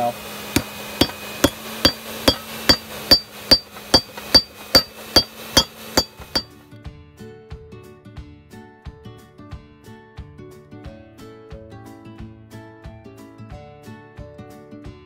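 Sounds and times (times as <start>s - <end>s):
ringing hammer strikes on metal: 0.6s - 6.5s.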